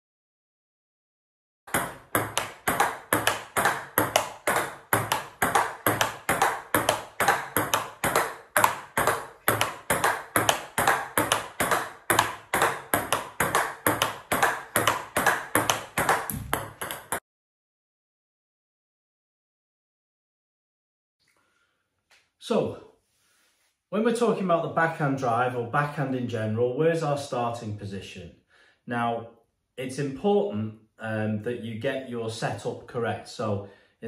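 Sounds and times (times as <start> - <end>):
table tennis ball clicking: 1.7 - 17.2.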